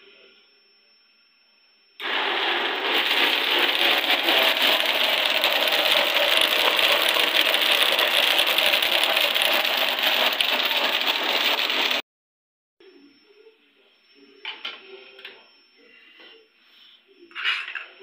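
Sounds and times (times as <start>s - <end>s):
electric blender running: 2.0s - 12.0s.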